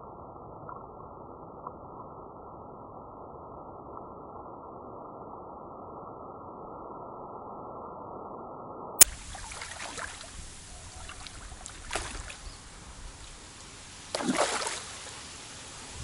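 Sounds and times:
fish splashing at surface: 0:09.0 - 0:16.0.

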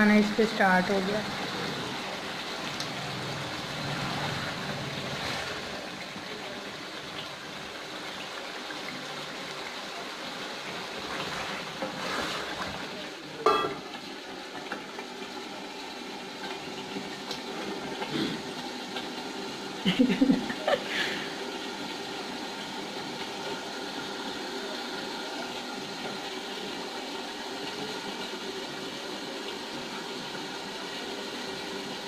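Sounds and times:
curry sizzling and simmering: 0:00.0 - 0:32.0
metal lid clanging on pot: 0:13.5 - 0:13.8.

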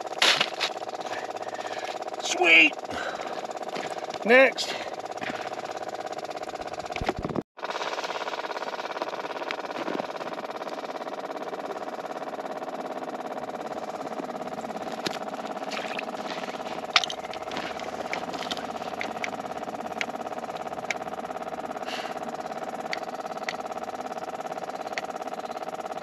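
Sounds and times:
small engine idling: 0:00.0 - 0:26.0
sharp clicks and knocks: 0:16.8 - 0:21.0, 0:22.9 - 0:23.6.

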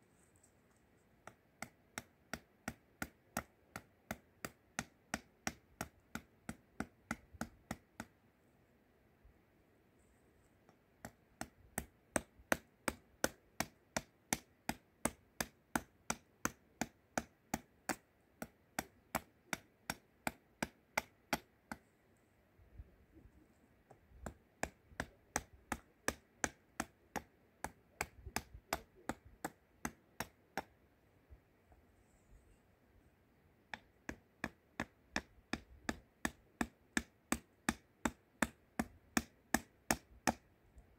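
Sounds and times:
hatchet chopping wood: 0:01.2 - 0:08.2, 0:10.7 - 0:21.9, 0:23.9 - 0:30.8, 0:33.7 - 0:40.5.

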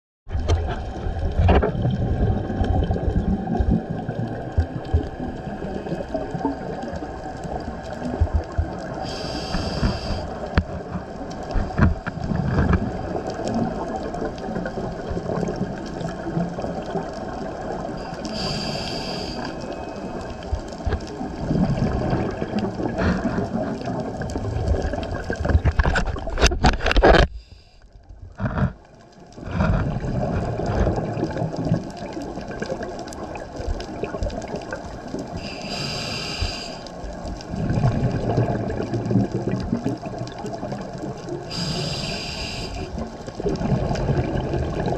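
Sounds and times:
underwater bubbling of exhaled air: 0:00.3 - 0:44.9
regulator hissing on inhalation: 0:09.0 - 0:10.4, 0:18.0 - 0:19.6, 0:35.4 - 0:36.8, 0:41.5 - 0:43.0.

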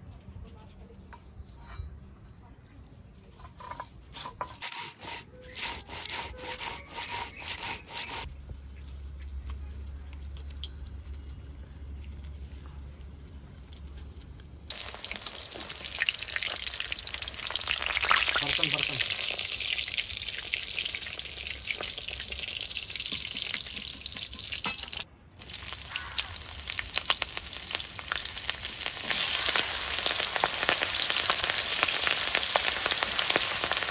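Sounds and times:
rhythmic scraping strokes: 0:03.3 - 0:08.3
food frying in hot oil: 0:14.7 - 0:33.9.

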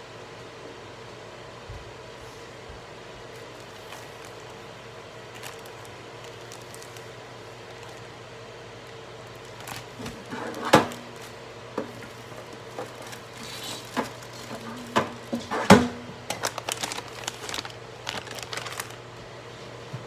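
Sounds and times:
microwave oven humming: 0:00.0 - 0:20.0
packaging crinkling: 0:03.3 - 0:19.3
knocks and clatter of kitchen things: 0:09.9 - 0:11.1, 0:11.8 - 0:16.1.

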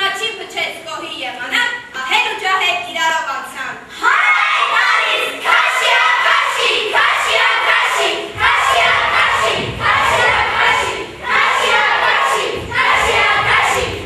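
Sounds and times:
young voices calling in unison: 0:03.9 - 0:14.0.

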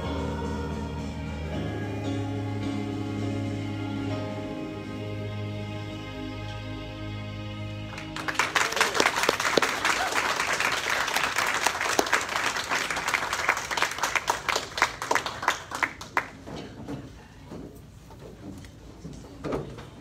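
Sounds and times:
people applauding: 0:07.9 - 0:16.5.

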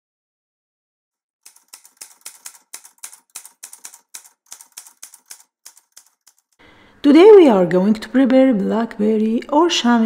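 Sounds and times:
typewriter keys clacking: 0:01.4 - 0:06.6.

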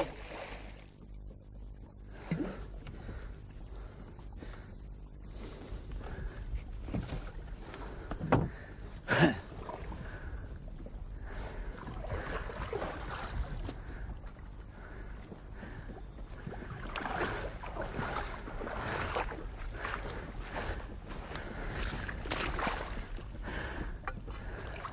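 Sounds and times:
water splashing and sloshing: 0:00.0 - 0:24.9
knocks on wooden boat: 0:08.1 - 0:08.6.

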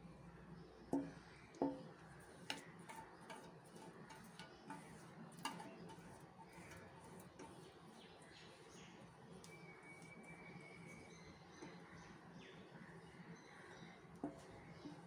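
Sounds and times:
spatula scraping steel bowl: 0:00.9 - 0:08.2, 0:14.2 - 0:15.0.

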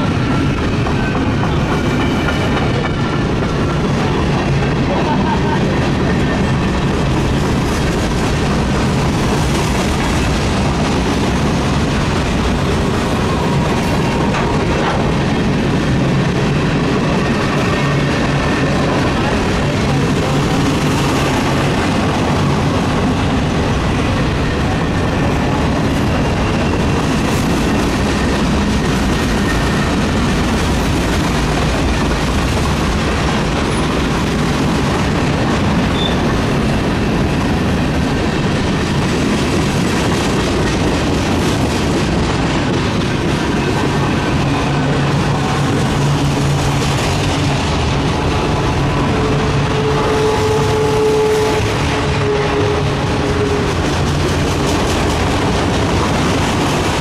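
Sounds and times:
train wheels rumbling on rail: 0:00.0 - 0:57.0
high-pitched wheel squeal: 0:35.9 - 0:36.3.

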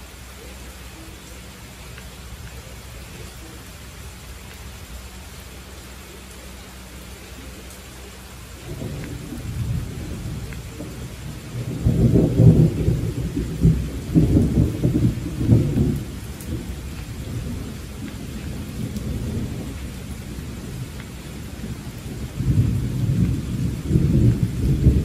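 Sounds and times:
steady rain: 0:00.0 - 0:25.0
deep thunder rolling: 0:08.6 - 0:25.0.

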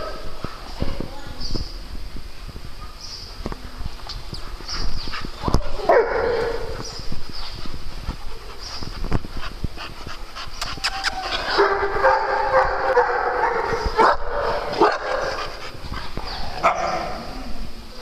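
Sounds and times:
dogs barking and yipping: 0:04.7 - 0:07.5, 0:10.4 - 0:17.3.

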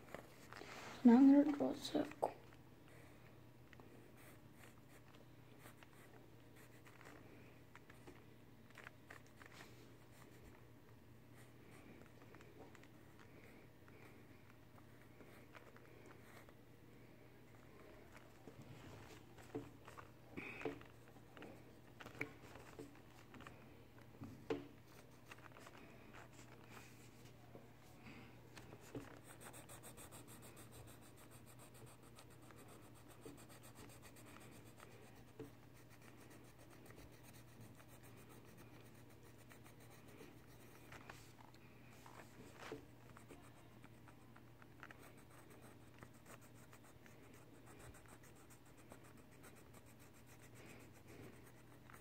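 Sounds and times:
pencil scratching on paper: 0:28.9 - 0:41.1, 0:43.1 - 0:52.0.

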